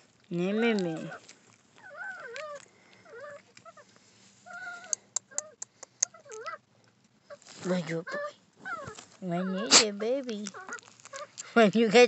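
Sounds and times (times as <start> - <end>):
puppy whimpering: 0.6 - 3.9, 4.5 - 6.6, 7.9 - 11.4
sharp clicks: 4.8 - 6.5.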